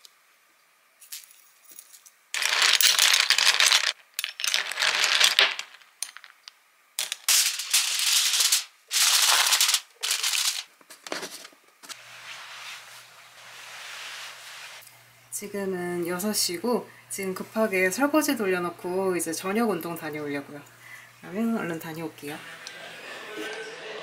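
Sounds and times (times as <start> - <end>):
shells clattering in glass bowl: 1.0 - 6.4.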